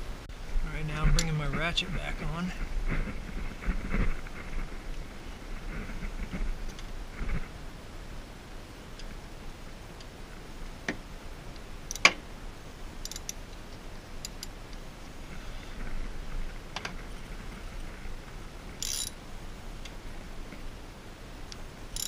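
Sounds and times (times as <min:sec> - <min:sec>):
hand ratchet clicking: 0:13.0 - 0:13.4, 0:14.2 - 0:14.5, 0:18.8 - 0:19.1.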